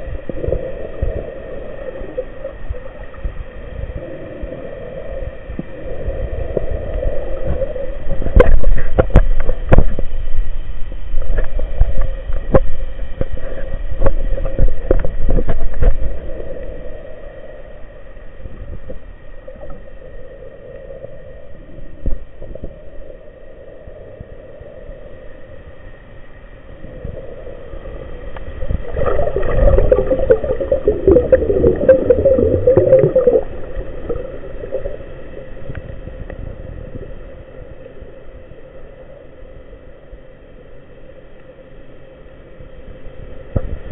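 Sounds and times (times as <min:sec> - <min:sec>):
underwater water rumble: 0:00.0 - 0:43.9
bubbling gurgle: 0:28.5 - 0:35.8.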